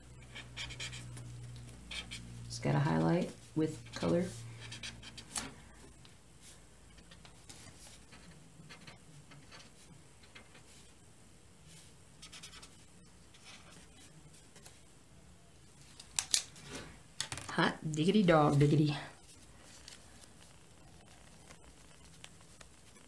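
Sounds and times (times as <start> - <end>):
fabric scratching and rustling: 0.4 - 14.9, 18.4 - 23.0.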